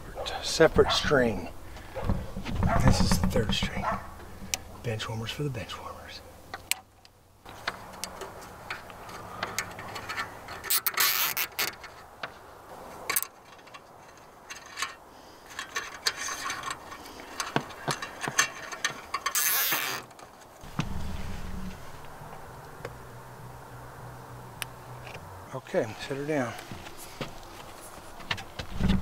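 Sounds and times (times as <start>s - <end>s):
small clicks and cable handling: 6.6s - 12.3s
zip ties ratcheting: 10.6s - 11.8s, 19.2s - 20.2s
low hum: 20.6s - 26.0s.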